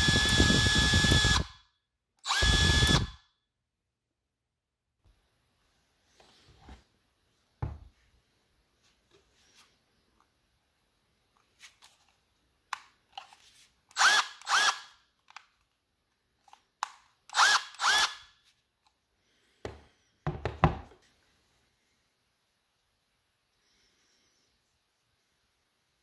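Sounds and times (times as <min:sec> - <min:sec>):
power tool motor whirring: 0:00.0 - 0:01.5, 0:02.2 - 0:03.2, 0:13.9 - 0:14.9, 0:17.3 - 0:18.2
tool knocking on wooden bench: 0:07.6 - 0:07.9, 0:19.6 - 0:21.0.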